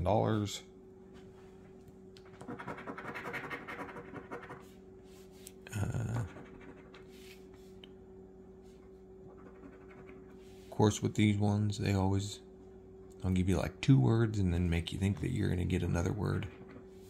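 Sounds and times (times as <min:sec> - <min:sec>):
faint steady hum: 0:00.0 - 0:17.0
lottery ticket being scratched: 0:02.2 - 0:04.8, 0:06.0 - 0:07.5, 0:09.3 - 0:10.8.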